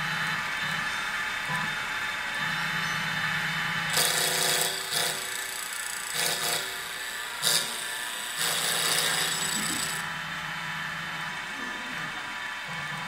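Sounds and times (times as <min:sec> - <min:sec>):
stepper motors whining: 0:08.6 - 0:13.0.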